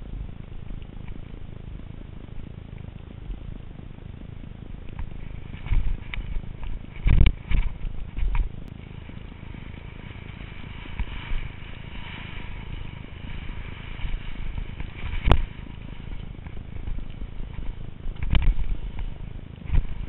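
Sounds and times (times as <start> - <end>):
wind rumble: 0.0 - 20.0
skis on snow: 4.9 - 20.0.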